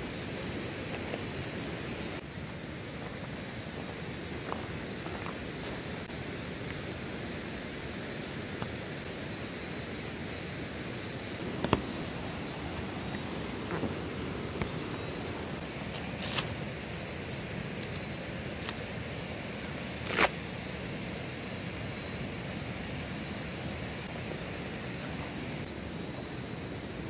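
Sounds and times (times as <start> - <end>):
rushing outdoor background: 0.0 - 27.0
tent pole clicks: 17.8 - 18.9, 20.0 - 20.4.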